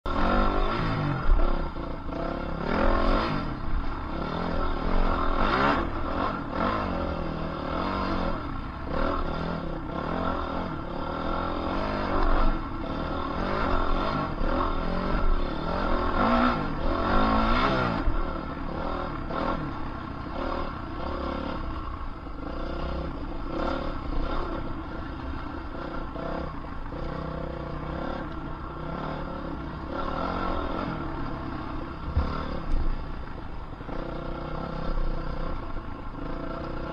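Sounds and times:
dirt bike engine revving: 0.1s - 36.9s.

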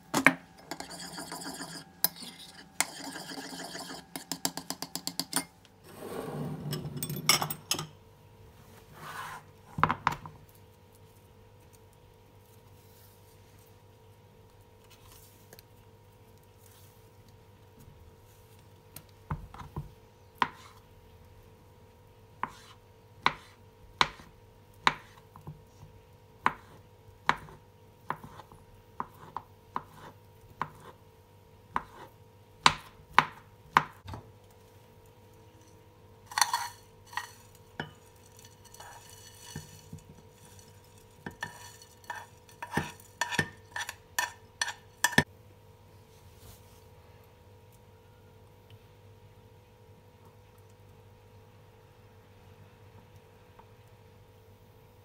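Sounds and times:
knife chopping on cutting board: 22.4s - 25.5s, 26.4s - 30.9s, 31.7s - 34.1s.

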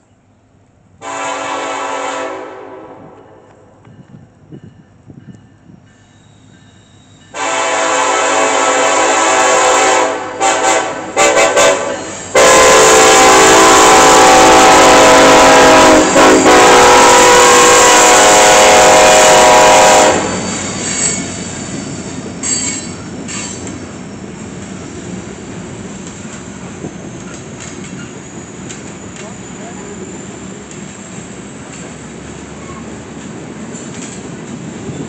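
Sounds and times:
train rumbling past: 0.0s - 35.0s
locomotive air horn blasts: 1.0s - 3.2s, 7.3s - 20.5s
wheel squeals: 5.9s - 7.3s, 20.3s - 24.9s, 26.9s - 30.4s.

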